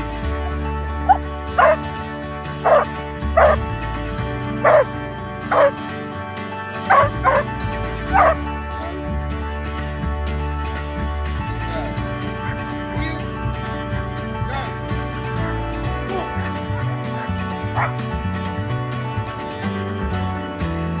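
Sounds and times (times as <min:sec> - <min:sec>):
background music: 0:00.0 - 0:21.0
dog barking: 0:01.1 - 0:01.8, 0:02.6 - 0:03.6, 0:04.6 - 0:04.9, 0:05.5 - 0:05.8, 0:06.9 - 0:07.5, 0:08.1 - 0:08.4, 0:17.8 - 0:18.0.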